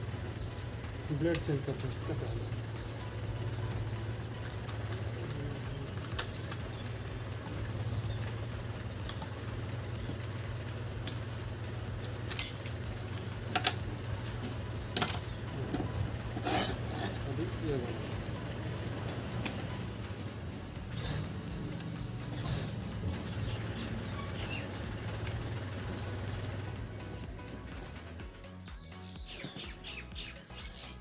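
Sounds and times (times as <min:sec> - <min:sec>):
metallic clicks and clinks: 0:10.0 - 0:13.9, 0:14.9 - 0:17.3.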